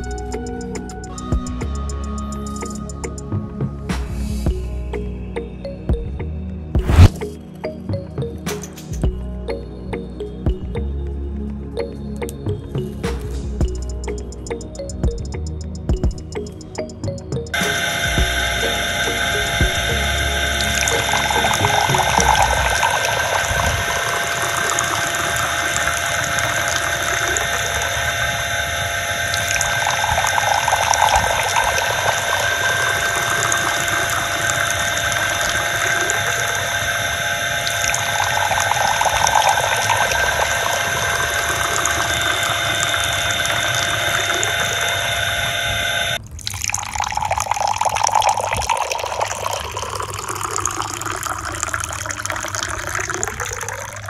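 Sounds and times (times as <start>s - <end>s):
electric water pump whining: 0.0s - 5.0s, 6.8s - 7.8s, 12.3s - 54.0s
water jet splashing into pond: 17.6s - 45.2s, 46.4s - 54.0s
water poured from metal bucket: 46.4s - 54.0s.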